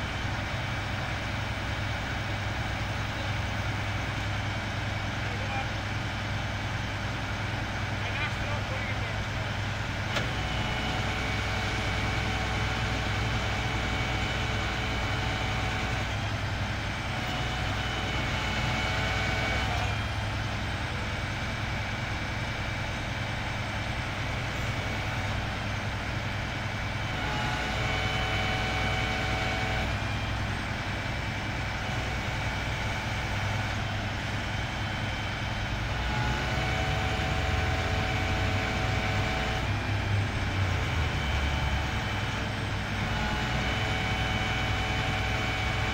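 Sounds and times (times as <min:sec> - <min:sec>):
diesel engine running: 0:00.0 - 0:45.9.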